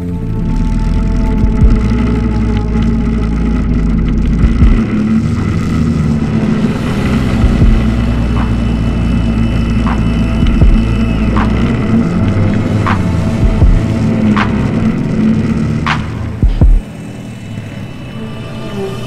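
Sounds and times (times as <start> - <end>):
atv engine running: 0.0 - 19.0.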